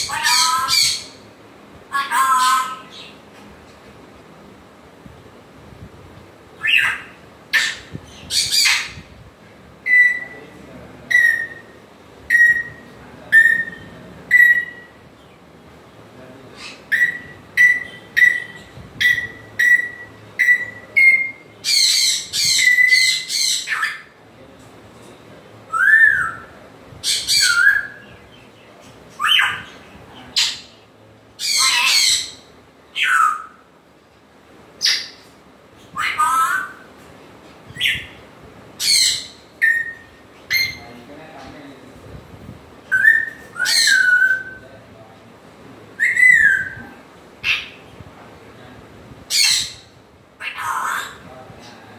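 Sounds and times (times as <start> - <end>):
parrot squawking: 0.0 - 1.2, 1.9 - 3.1, 6.6 - 9.0, 11.1 - 11.7, 16.6 - 24.2, 27.0 - 28.0, 29.2 - 29.7, 31.4 - 33.6, 34.8 - 35.2, 35.9 - 36.9, 38.8 - 40.8, 42.9 - 44.6, 47.4 - 47.9, 49.3 - 51.3
parrot whistling: 9.8 - 10.4, 11.1 - 11.7, 12.3 - 12.8, 13.4 - 14.9, 16.9 - 23.9, 38.8 - 40.8, 42.9 - 44.6, 46.0 - 46.8.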